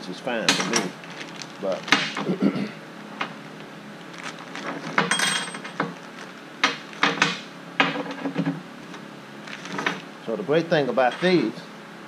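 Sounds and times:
steel parts clinking on steel table: 5.0 - 5.9, 11.1 - 11.4.

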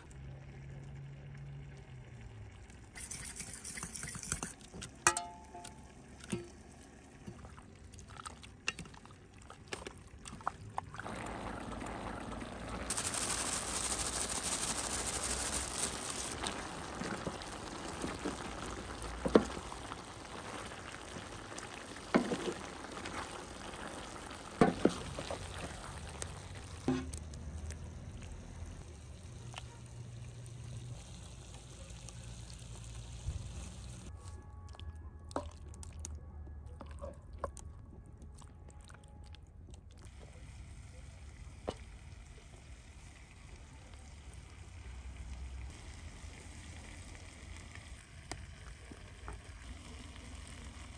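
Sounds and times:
stew pouring: 0.0 - 33.9
wooden ladle knocking on iron pot: 5.1 - 6.6
loud hiss: 12.9 - 16.4.

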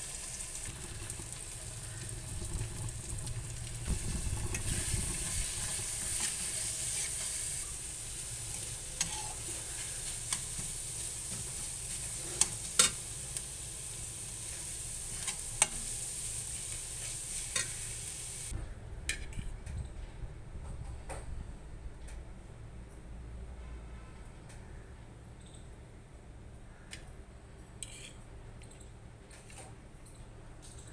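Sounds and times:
egg sizzling in a hot pan: 0.0 - 18.5
metal spatula stirring: 3.8 - 13.1, 27.8 - 28.2.

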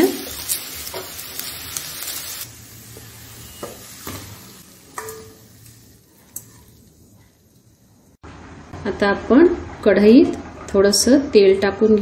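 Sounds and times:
okra sizzling in oil: 0.0 - 8.2
metal spoon clinking on pan: 4.9 - 5.4.

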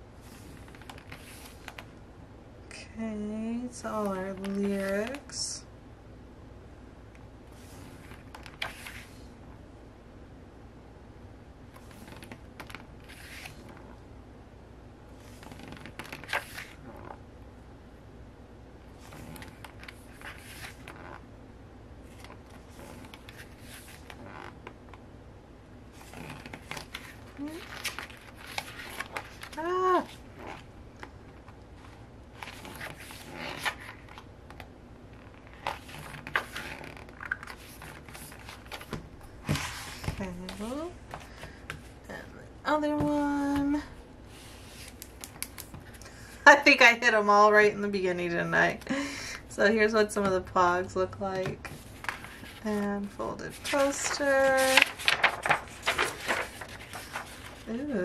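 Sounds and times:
booklet pages turning: 0.2 - 1.9, 4.0 - 5.3, 7.5 - 9.2, 11.7 - 14.0, 15.2 - 17.2, 18.9 - 21.2, 22.0 - 25.0, 25.9 - 42.0, 44.3 - 46.0, 51.5 - 58.0.

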